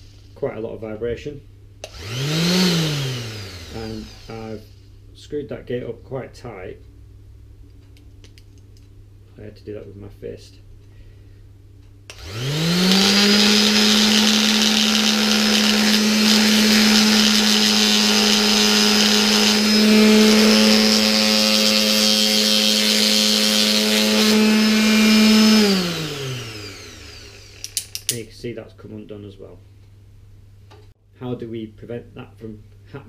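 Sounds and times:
electric orbital sander running: 1.9 - 4.6, 12.1 - 27.8.

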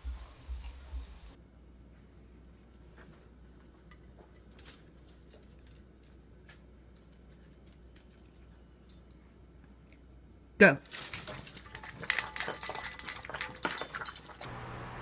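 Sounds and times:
low steady hum: 0.0 - 15.0
dog claws clicking on tiles: 10.9 - 14.5.

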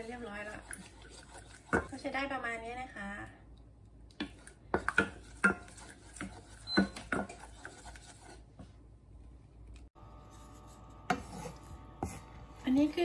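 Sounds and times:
spoon scraping saucepan: 0.0 - 2.2, 4.2 - 8.5.

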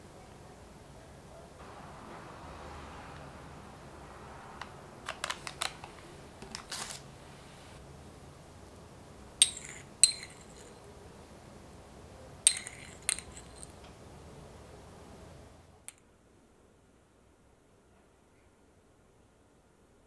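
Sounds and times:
metal spoon clinking on plate: 9.4 - 10.9, 12.4 - 13.8.

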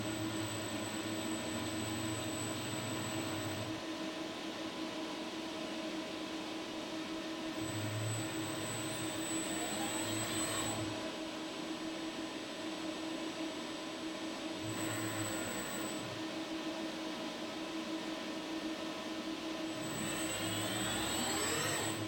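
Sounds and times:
robot servo motor hum: 19.9 - 22.0.

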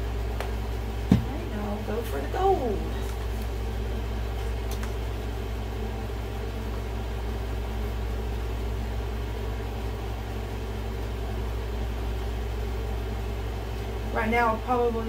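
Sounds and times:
steady machine hum: 0.0 - 15.0.

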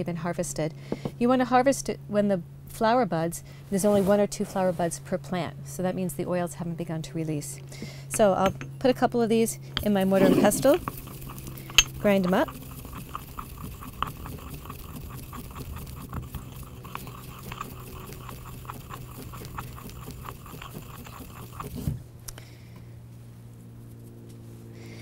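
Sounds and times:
pestle grinding in mortar: 9.7 - 22.0
pestle knocking mortar: 9.8 - 21.9.

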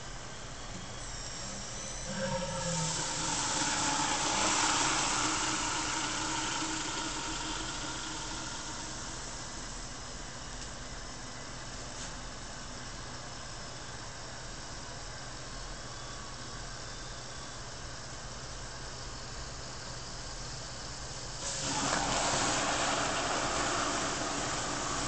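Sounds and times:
machine hum: 1.0 - 10.8, 21.4 - 25.0
liquid nitrogen boiling hiss: 2.1 - 10.0, 21.4 - 25.0.

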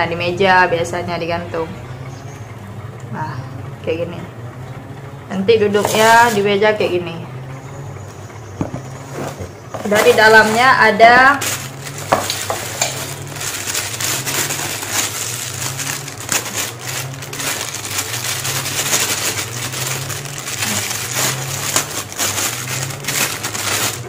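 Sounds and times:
plastic bag crinkling: 8.9 - 24.0.

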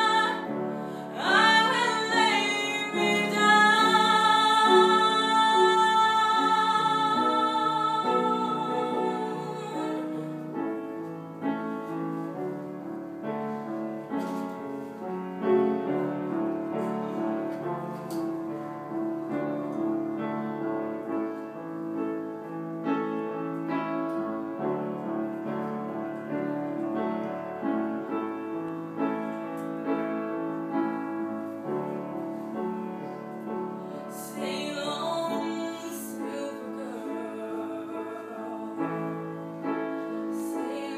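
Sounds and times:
woman singing with vibrato: 0.0 - 10.3, 33.9 - 39.2, 40.3 - 40.9
piano accompaniment: 0.0 - 40.9.

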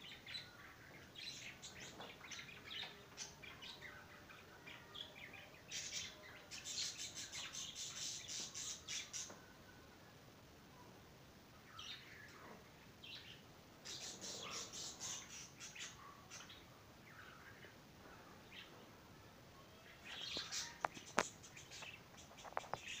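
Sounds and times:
budgerigars chirping and chattering: 0.0 - 9.4, 13.0 - 17.7, 19.9 - 23.0.

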